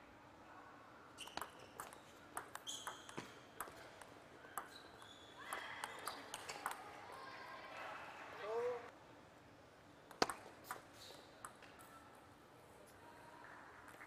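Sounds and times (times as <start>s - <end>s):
shoes squeaking on floor: 1.2s - 3.5s, 4.7s - 6.2s
table tennis ball clicking: 1.4s - 4.7s.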